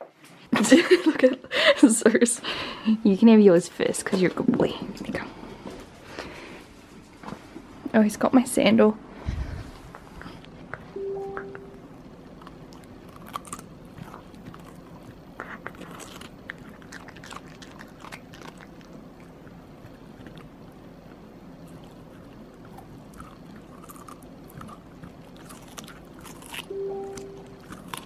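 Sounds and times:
dog crunching carrot: 12.2 - 28.0.

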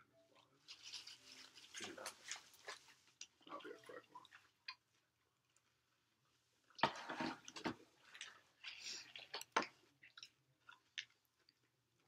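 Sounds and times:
chewing: 7.5 - 12.0.

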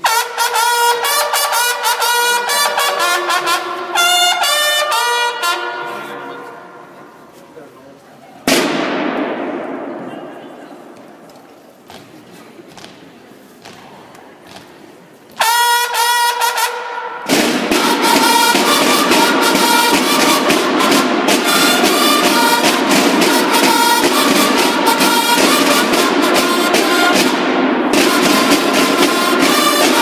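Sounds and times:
bugle call: 0.0 - 6.9, 15.4 - 30.0
several bugles playing together: 0.0 - 7.4, 8.5 - 10.6, 11.9 - 30.0
rapid snare drumming: 8.5 - 10.2, 11.8 - 30.0.

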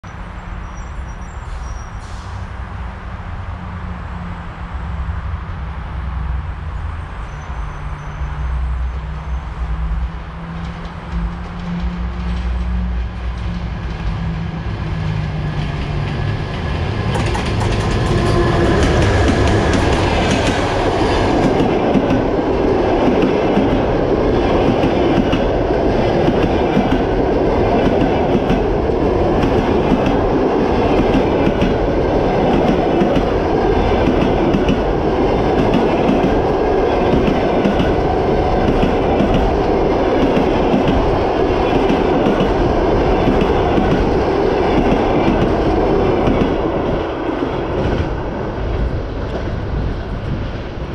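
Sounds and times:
train passing at speed: 0.0 - 50.9
wheels clacking over rail joints: 15.0 - 48.2.

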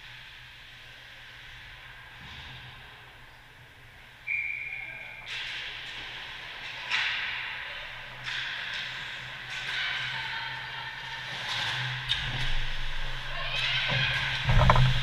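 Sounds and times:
short whistle blast: 4.3 - 5.2.

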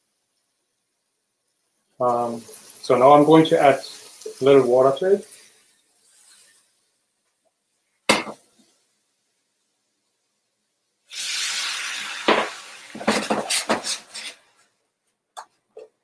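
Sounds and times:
water sizzling in hot pan: 0.0 - 14.7
spatula scraping a pan: 5.9 - 6.8, 12.2 - 14.6.

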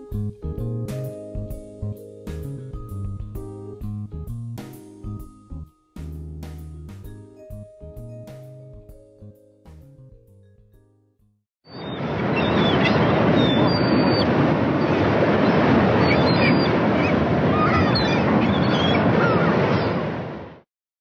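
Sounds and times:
music: 0.0 - 11.4
bird calls: 11.7 - 20.0
waves breaking: 11.8 - 20.6.

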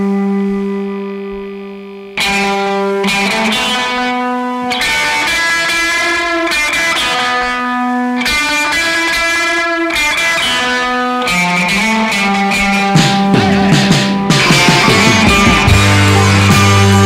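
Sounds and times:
electric guitar chords: 0.0 - 17.0.

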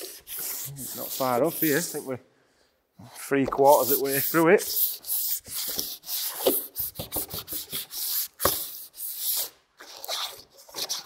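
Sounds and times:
sandpaper scrubbing metal panel: 3.6 - 6.5.

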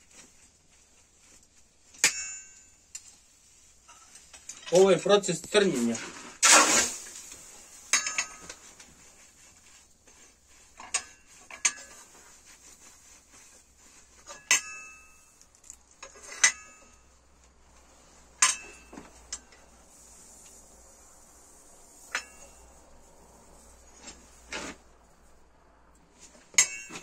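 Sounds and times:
steel clinking on steel: 1.9 - 4.8, 7.9 - 8.6, 10.7 - 12.1, 14.2 - 17.2, 18.4 - 19.7, 21.9 - 22.8, 26.4 - 27.0.

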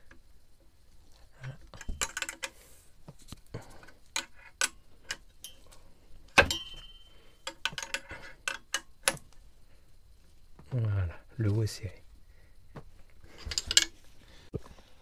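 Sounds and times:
loud ringing metal clink: 6.4 - 7.4.

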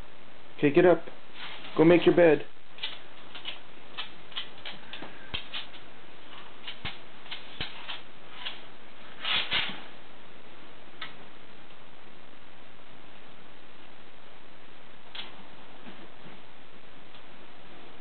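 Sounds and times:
dog claws clicking on floor: 2.8 - 5.8, 6.6 - 8.6.

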